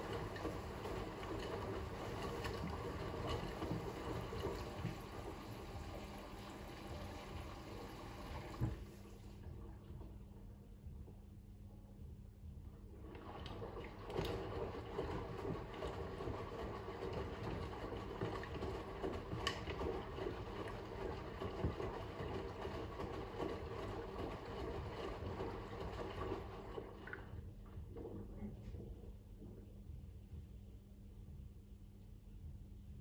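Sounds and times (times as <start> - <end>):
water sloshing in washing machine: 0.0 - 10.4, 12.9 - 29.7
washing machine motor hum: 0.0 - 11.2, 12.4 - 30.4.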